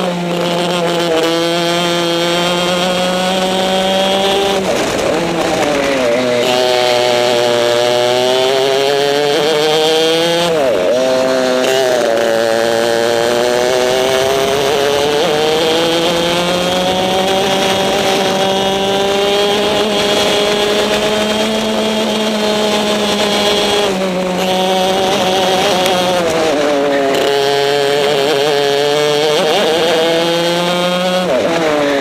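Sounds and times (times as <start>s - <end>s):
kart engine at high revs: 0.0s - 32.0s.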